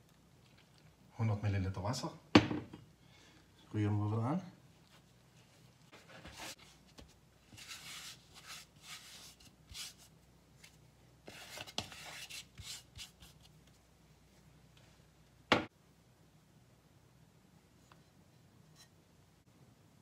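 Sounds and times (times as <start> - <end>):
dough rubbing on stone counter: 7.5 - 10.1, 11.3 - 13.5.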